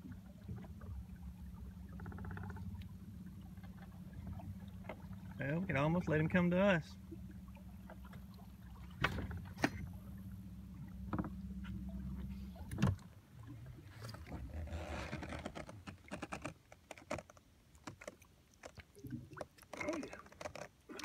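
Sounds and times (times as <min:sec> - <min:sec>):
boat motor humming: 0:00.0 - 0:18.0
light knocks and rustles: 0:08.9 - 0:10.0.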